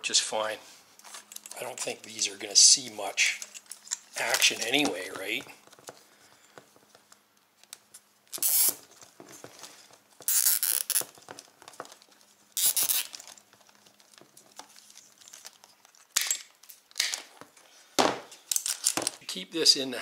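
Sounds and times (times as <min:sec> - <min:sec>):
zip ties zipping tight: 0:08.3 - 0:08.8, 0:10.3 - 0:11.0, 0:12.6 - 0:13.1.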